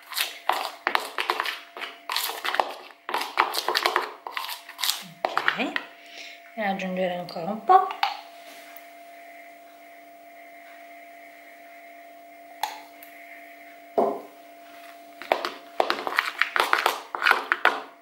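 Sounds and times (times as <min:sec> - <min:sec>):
spoon stirring whipped cream: 0:00.0 - 0:05.9, 0:15.2 - 0:17.9
low electrical hum: 0:00.0 - 0:18.0
spoon knocking on plastic bowl: 0:14.0 - 0:14.3.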